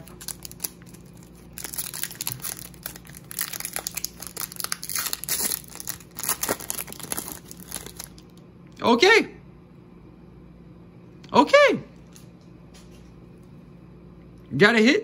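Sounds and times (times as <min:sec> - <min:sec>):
foil wrapper tearing and crinkling: 0:00.0 - 0:08.4.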